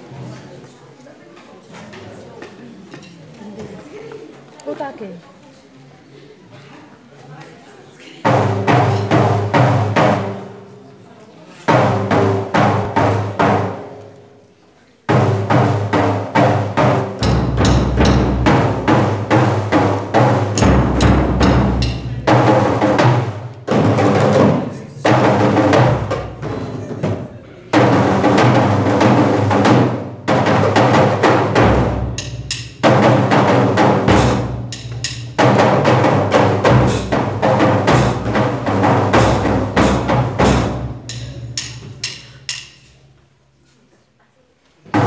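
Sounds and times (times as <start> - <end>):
small hand drums: 15.1 - 43.3
bass drum struck with mallets: 16.4 - 23.0, 28.3 - 42.8.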